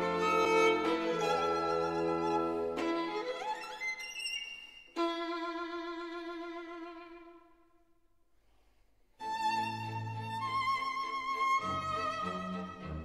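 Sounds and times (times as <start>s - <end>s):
instrumental music: 0.0s - 7.4s.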